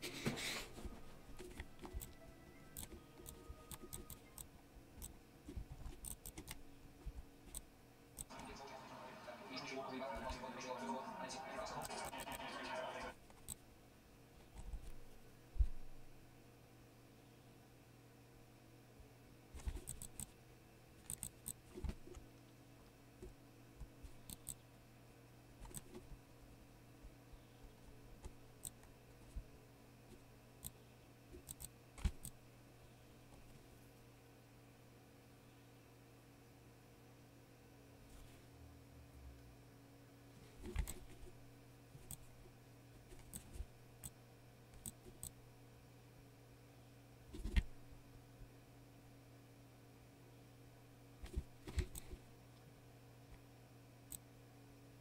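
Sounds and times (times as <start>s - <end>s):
low steady hum: 0.0s - 55.0s
small clicks and ticks: 21.0s - 22.5s, 24.2s - 24.6s.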